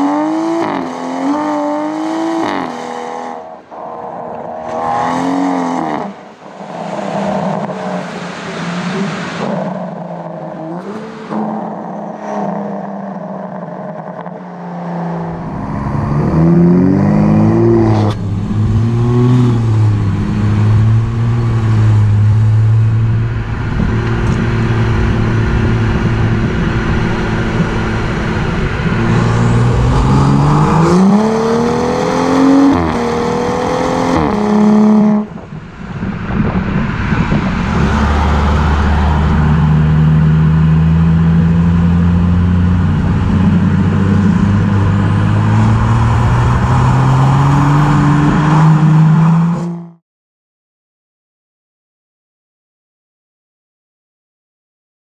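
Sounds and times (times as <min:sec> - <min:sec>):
car exhaust engine revving: 0:15.2 - 0:50.0.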